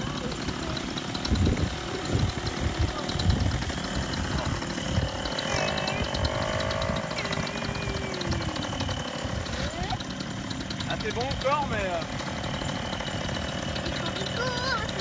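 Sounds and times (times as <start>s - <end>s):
paramotor engine idling: 0.0s - 15.0s
wind buffeting microphone: 1.2s - 5.3s.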